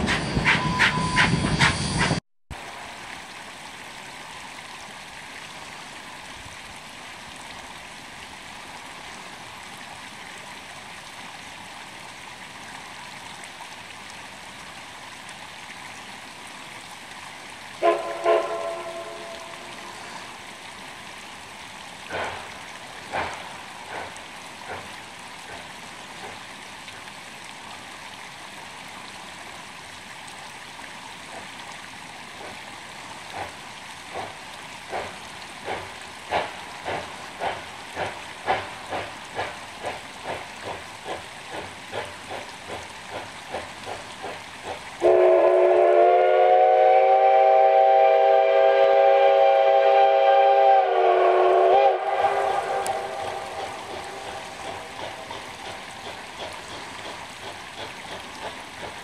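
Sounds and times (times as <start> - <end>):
distant steam whistle: 0.0 - 2.2, 17.8 - 20.4, 45.0 - 55.6
creek trickling: 2.5 - 59.0.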